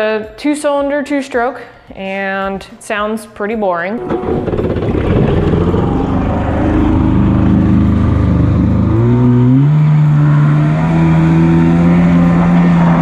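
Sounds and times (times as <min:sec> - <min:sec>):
jet ski two-stroke engine: 0:04.0 - 0:13.0
water noise from hull: 0:04.0 - 0:13.0.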